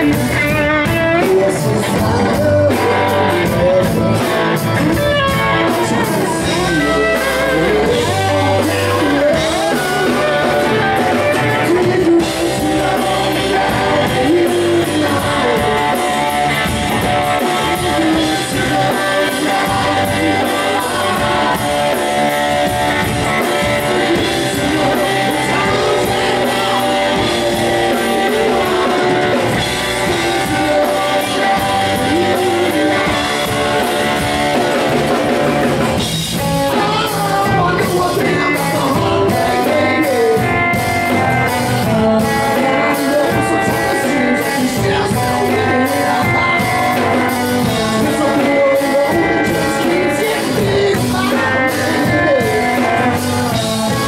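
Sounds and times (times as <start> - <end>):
drums: 0.0 - 54.0
lead vocal singing: 0.0 - 54.0.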